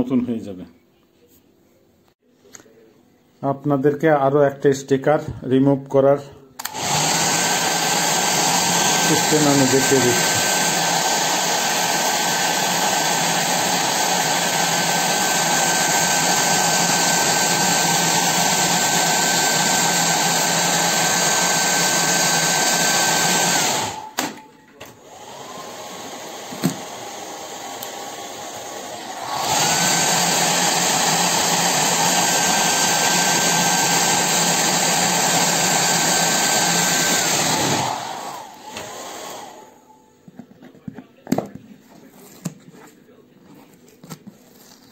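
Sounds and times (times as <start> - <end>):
hair dryer whining: 6.6 - 40.0.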